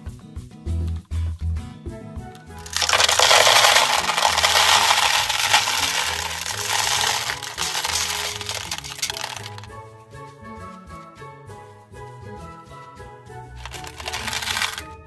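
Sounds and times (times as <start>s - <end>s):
candies clattering into plastic tub: 2.6s - 9.7s, 13.6s - 14.9s.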